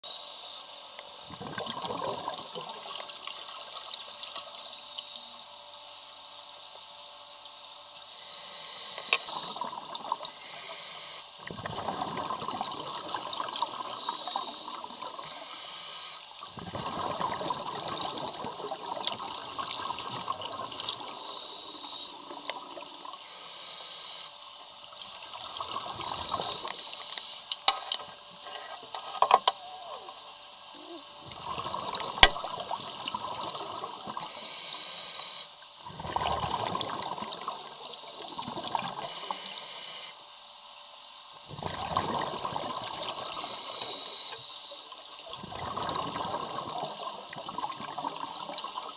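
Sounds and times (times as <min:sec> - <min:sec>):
bubbles gurgling underwater: 0:01.3 - 0:03.2, 0:11.4 - 0:15.2, 0:16.5 - 0:21.2, 0:31.2 - 0:34.3, 0:35.8 - 0:39.1, 0:41.5 - 0:43.4, 0:45.2 - 0:48.9.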